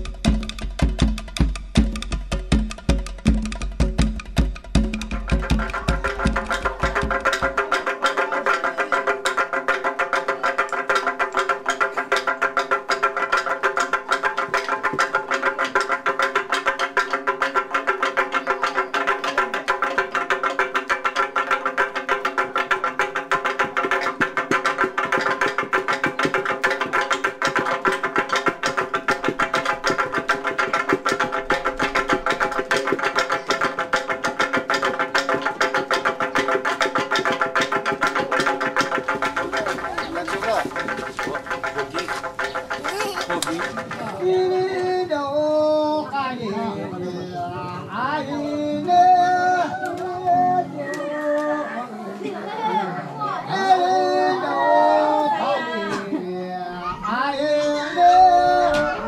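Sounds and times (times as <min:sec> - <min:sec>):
sticks striking fast rhythm: 0:00.0 - 0:44.8.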